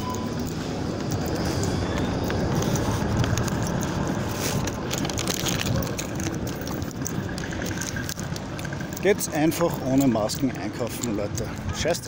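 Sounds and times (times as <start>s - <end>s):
wind noise on microphone: 0.0s - 8.9s.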